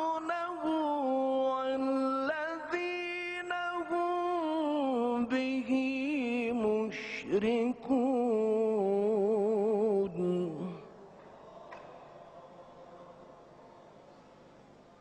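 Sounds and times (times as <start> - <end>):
man reciting in melodic chant: 0.0 - 11.0.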